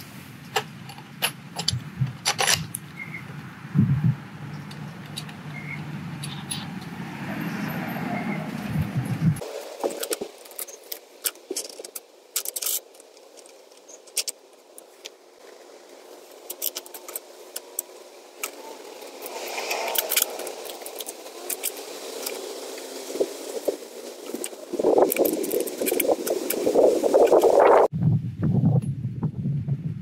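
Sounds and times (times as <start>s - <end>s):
metal washers and nuts clinking: 0.5s - 2.8s, 4.7s - 6.9s, 9.8s - 15.1s.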